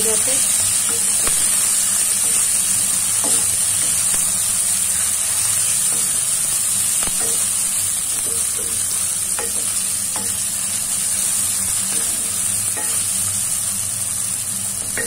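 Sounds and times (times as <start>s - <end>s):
vegetables sizzling in hot oil: 0.0s - 15.0s
spoon knocking against pan: 7.0s - 7.6s, 8.2s - 10.5s, 11.9s - 13.0s.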